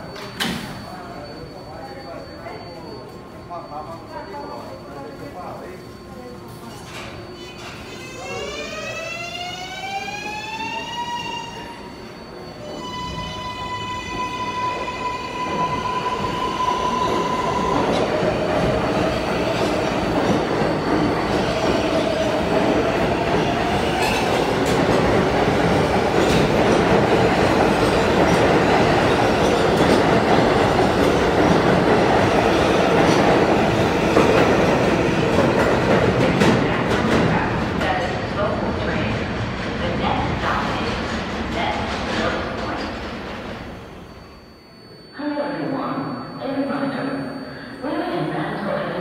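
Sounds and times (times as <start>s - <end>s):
steady high-pitched tone: 9.7s - 26.4s, 43.5s - 49.0s
train rumble and clatter: 14.8s - 43.8s.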